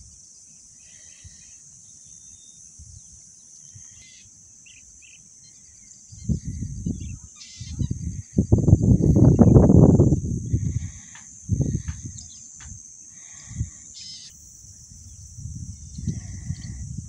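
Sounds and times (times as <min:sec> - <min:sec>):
insects high-pitched drone: 0:00.0 - 0:17.0
faint bird chirps: 0:00.8 - 0:09.6, 0:11.7 - 0:12.6, 0:13.5 - 0:14.4, 0:15.0 - 0:16.9.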